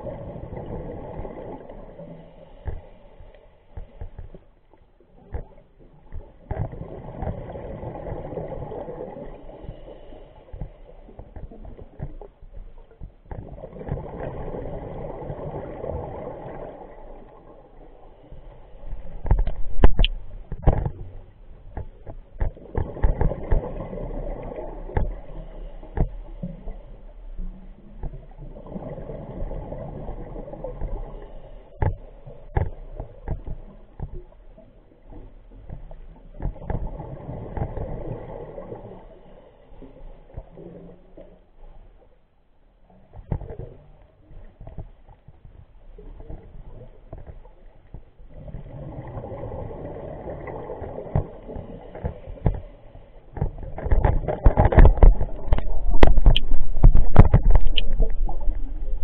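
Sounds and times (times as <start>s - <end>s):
clicks and knocks: 53.4s - 58.7s.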